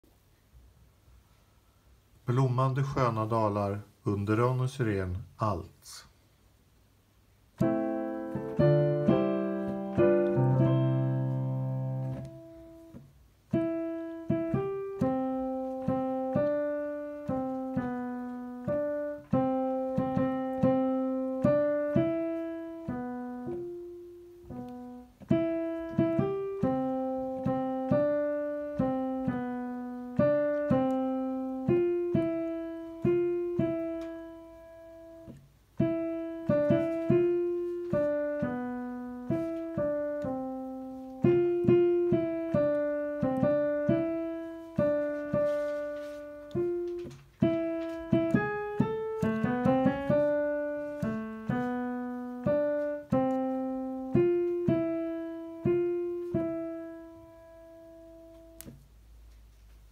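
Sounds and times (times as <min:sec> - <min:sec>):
piano playing chords and melody: 0:07.6 - 0:58.8.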